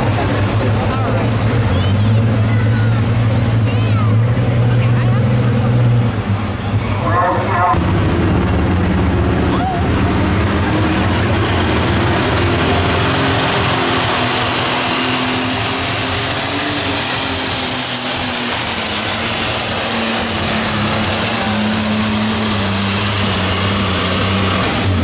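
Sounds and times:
tractor engine at full power: 0:00.0 - 0:25.0.

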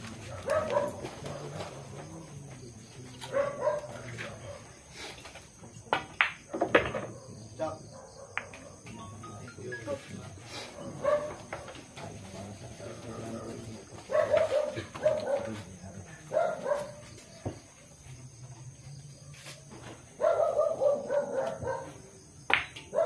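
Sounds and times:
dog barking: 0:00.2 - 0:01.7, 0:03.2 - 0:04.8, 0:07.1 - 0:08.8, 0:10.7 - 0:11.5, 0:14.1 - 0:15.7, 0:16.3 - 0:17.1, 0:20.2 - 0:22.0.

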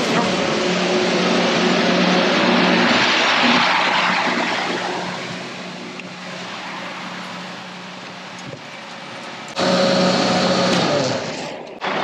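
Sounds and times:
electric motor hum: 0:09.5 - 0:12.0.

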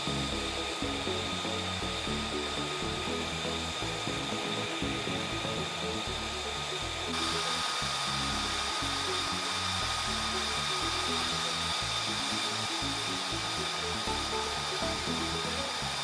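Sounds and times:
background music low notes: 0:00.0 - 0:16.0
jet engine idling with whine: 0:00.0 - 0:16.0.

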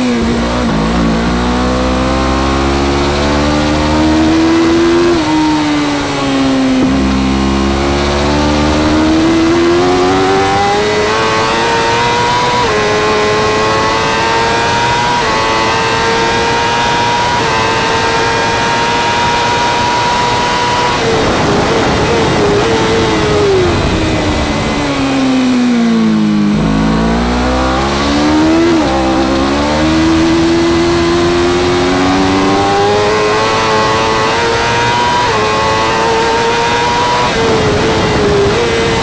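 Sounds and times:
motorcycle engine revving: 0:00.0 - 0:39.0
wind rush: 0:18.7 - 0:26.7, 0:27.6 - 0:39.0.

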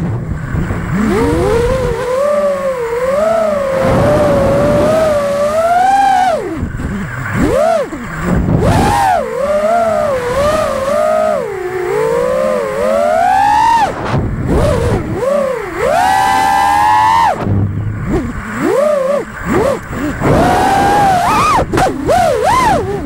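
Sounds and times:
quadcopter motors whining: 0:00.0 - 0:23.0.

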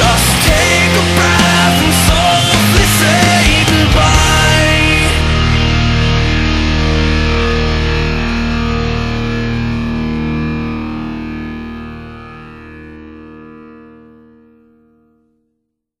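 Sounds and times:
distorted electric guitar chord: 0:00.0 - 0:15.6.

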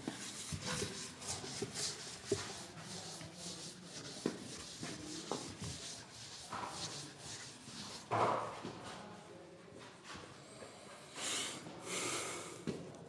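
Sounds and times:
duster rubbing on blackboard: 0:00.0 - 0:08.4.

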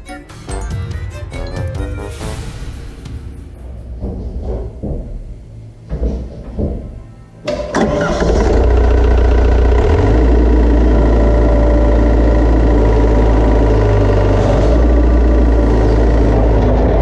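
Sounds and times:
excavator diesel engine running: 0:07.5 - 0:17.0.

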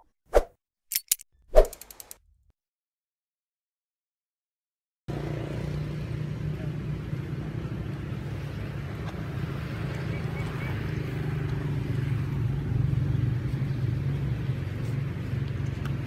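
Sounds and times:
engine rumbling: 0:05.1 - 0:16.0.

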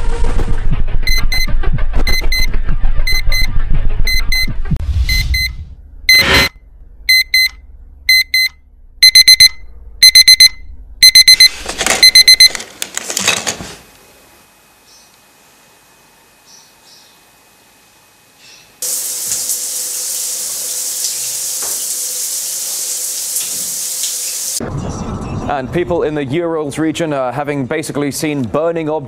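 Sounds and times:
low rumble: 0:00.0 - 0:11.0
alarm clock beeping: 0:01.1 - 0:01.5, 0:02.1 - 0:02.5, 0:03.1 - 0:03.5, 0:04.1 - 0:04.5, 0:05.1 - 0:05.5, 0:06.1 - 0:06.5, 0:07.1 - 0:12.5.

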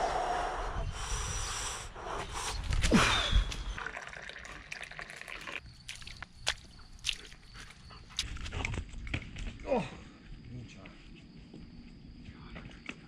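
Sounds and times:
bare feet on wet gravel: 0:05.8 - 0:08.5.

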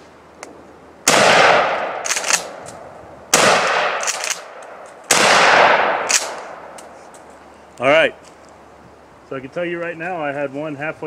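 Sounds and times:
shotgun blasts echoing: 0:01.0 - 0:06.8.

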